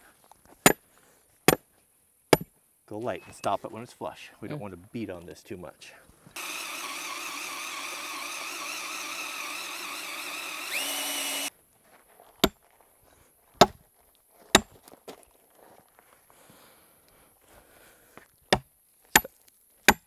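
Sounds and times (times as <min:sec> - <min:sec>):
cordless drill boring into wood: 0:06.4 - 0:11.5.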